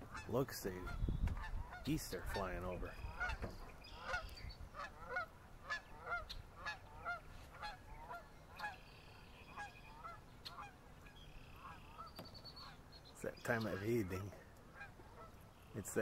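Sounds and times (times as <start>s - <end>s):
geese honking: 0.0s - 16.0s.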